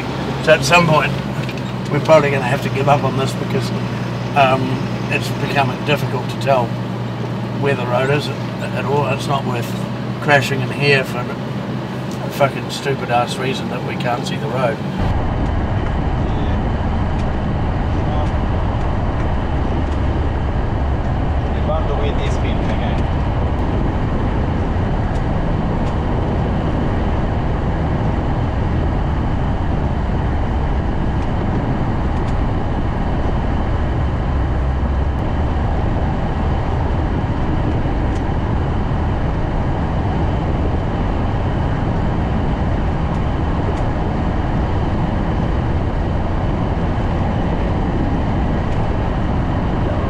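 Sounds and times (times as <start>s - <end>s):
vehicle engine and tyre rumble: 0.0s - 50.0s.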